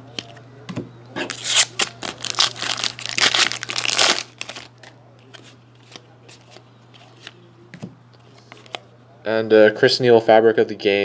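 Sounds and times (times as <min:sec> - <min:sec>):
foil wrapper crinkling: 0:01.3 - 0:04.9.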